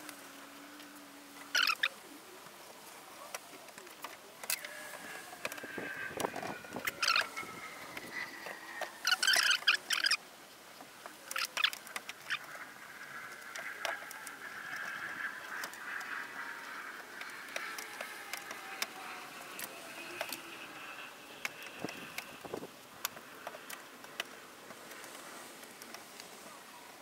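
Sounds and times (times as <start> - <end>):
faint rubbery squeaks: 0.0 - 2.0, 2.8 - 10.2, 11.2 - 22.7.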